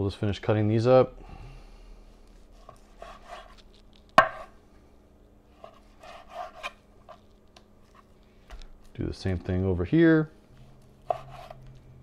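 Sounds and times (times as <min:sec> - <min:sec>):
knife slicing meat: 0:11.0 - 0:11.6.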